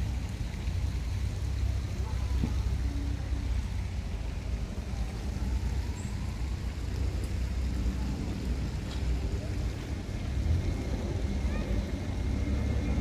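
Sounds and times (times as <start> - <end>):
low outdoor rumble: 0.0 - 13.0
faint voices: 1.6 - 13.0.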